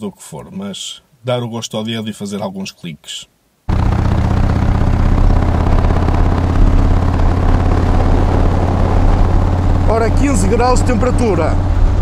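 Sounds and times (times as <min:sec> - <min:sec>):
motorcycle engine idling: 0:03.7 - 0:12.0.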